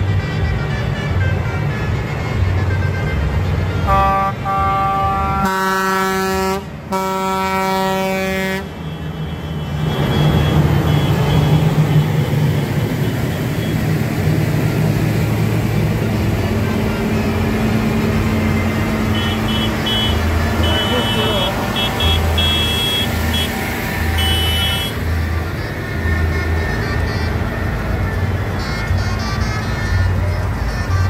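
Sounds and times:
deep air horn blast: 0.0 - 8.9, 15.4 - 25.1
tractor engines rumbling: 0.0 - 31.0
higher vehicle horn: 0.2 - 12.5, 17.0 - 27.4.

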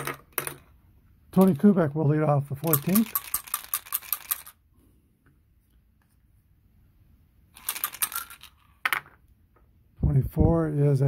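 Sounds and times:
dice rattling and clattering: 0.0 - 0.8, 1.4 - 1.8, 2.6 - 4.6, 7.6 - 9.2.

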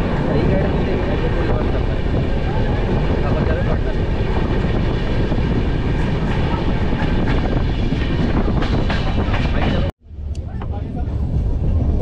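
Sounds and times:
train locomotive rumbling: 0.0 - 12.0.

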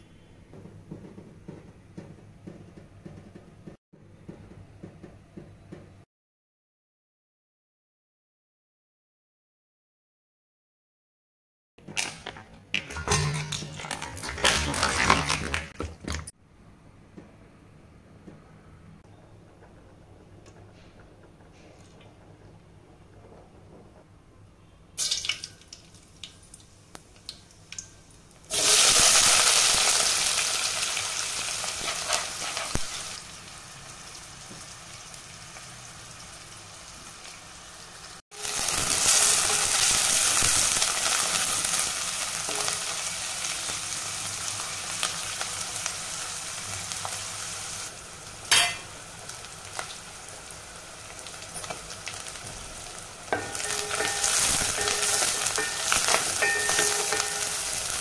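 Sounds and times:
onions sizzling in oil: 28.4 - 58.0
wooden spatula stirring: 53.3 - 58.0
spatula knocking on pot: 53.4 - 57.8.

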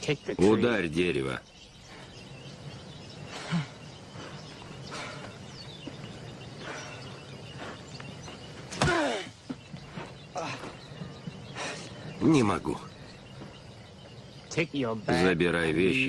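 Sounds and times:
bird calls: 0.0 - 16.0
outdoor ambience: 0.0 - 16.0.

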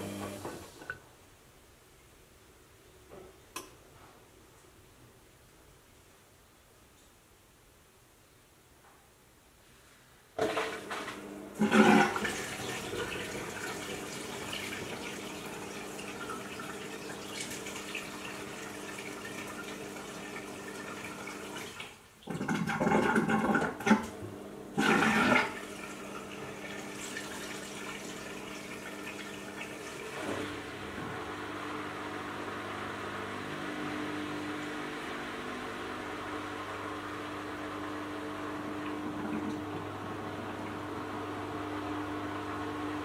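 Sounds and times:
water rushing into washing machine: 0.0 - 1.0, 10.4 - 43.0.

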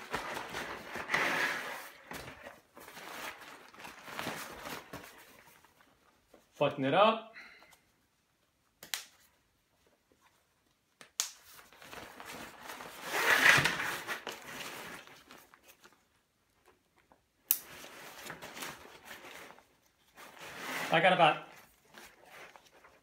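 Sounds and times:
backpack fabric rustling: 11.8 - 15.4.

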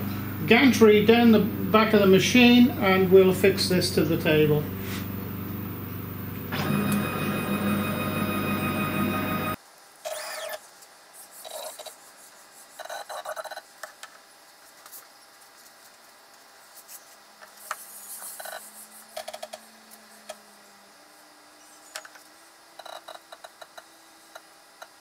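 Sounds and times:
stepper motors whining: 0.0 - 9.6.

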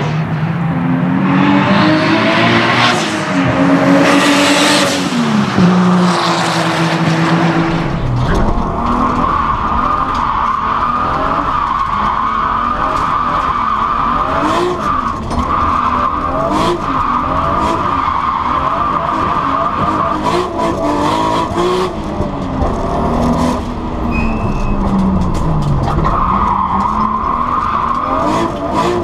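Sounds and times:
car engine revving: 0.0 - 24.1, 24.8 - 29.0
tyre squeal: 24.0 - 25.2.

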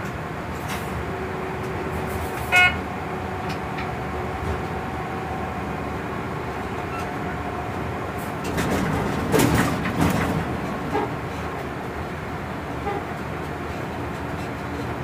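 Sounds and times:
locomotive cab rumble: 0.0 - 15.0
loud horn-like beep: 2.5 - 2.8.

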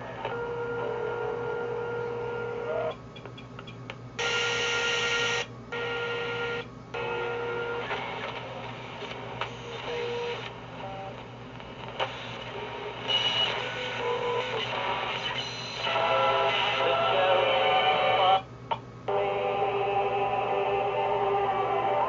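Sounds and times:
radio static and hiss: 0.0 - 3.0, 4.2 - 18.5, 19.1 - 22.0
steady radio whistle: 4.2 - 8.4.

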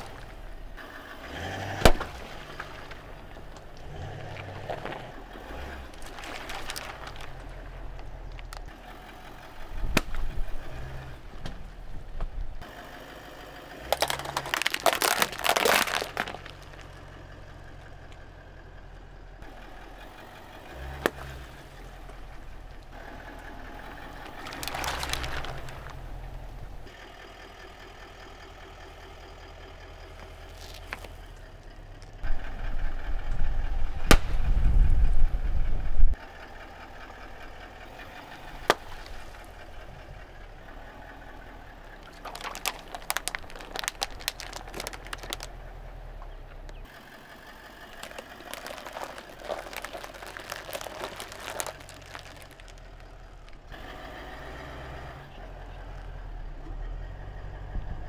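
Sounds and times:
tyre rolling over small objects: 0.0 - 0.8, 1.9 - 11.7, 13.8 - 17.8, 23.8 - 26.9, 30.1 - 31.4, 37.9 - 39.9, 41.8 - 45.6, 47.6 - 53.8
plastic cups crackling and popping: 0.0 - 12.4, 13.8 - 18.2, 20.8 - 26.9, 30.1 - 32.3, 38.0 - 40.0, 41.8 - 53.9
car engine idling: 0.0 - 58.0
low rumble: 31.1 - 46.8.

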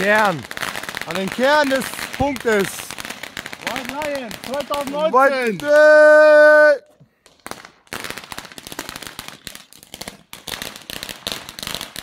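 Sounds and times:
firecracker bangs: 0.0 - 6.4.

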